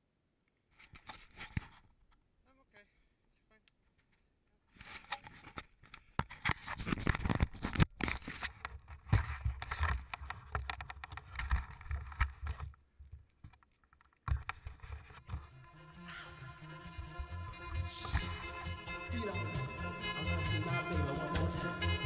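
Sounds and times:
camera knocks and rattles: 0:06.2 - 0:15.4.

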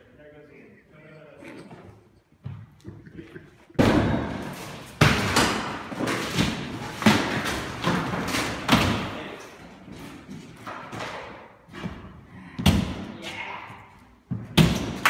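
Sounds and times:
drywall being smashed: 0:03.8 - 0:09.4, 0:14.5 - 0:15.0.

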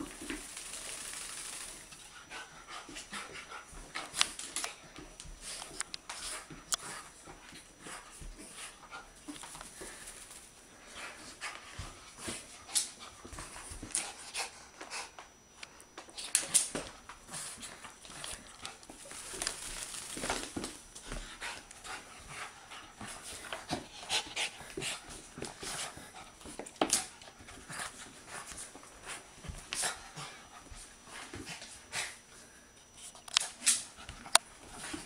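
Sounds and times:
dog panting: 0:02.0 - 0:10.1, 0:10.7 - 0:15.3, 0:21.0 - 0:32.5.

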